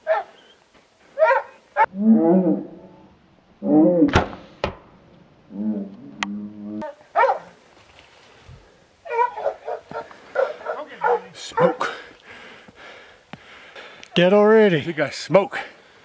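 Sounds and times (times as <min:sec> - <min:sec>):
dog baying: 0:01.2 - 0:01.9, 0:06.7 - 0:07.5, 0:09.0 - 0:11.9
bow shot snap: 0:04.1 - 0:04.9.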